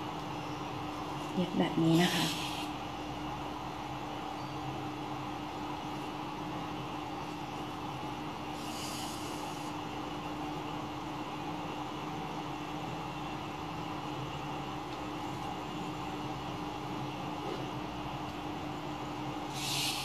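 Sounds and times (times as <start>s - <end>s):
constant low hum: 0.0s - 20.0s
brief high hiss: 19.5s - 20.0s.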